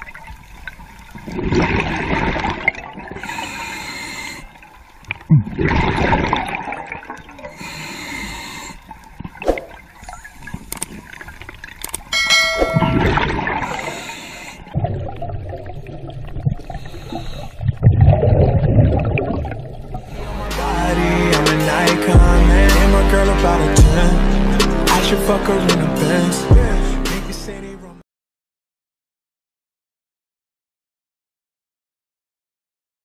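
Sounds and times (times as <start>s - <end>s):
exhaled bubbles rushing: 1.1s - 3.3s, 5.2s - 7.6s, 9.1s - 10.5s, 12.4s - 14.0s, 14.7s - 20.4s
diver breathing through regulator: 3.2s - 4.6s, 7.5s - 9.0s, 13.6s - 14.8s, 16.7s - 17.7s
short bell-like ding: 12.1s - 13.3s.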